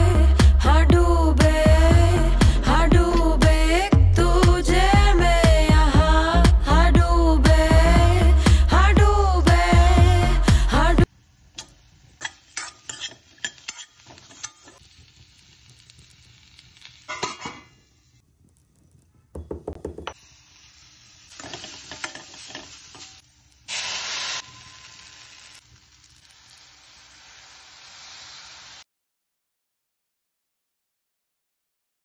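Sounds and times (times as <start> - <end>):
food sizzling: 11.0 - 18.2, 20.0 - 28.9
metal spoon scraping pan: 11.6 - 14.8, 21.3 - 23.2.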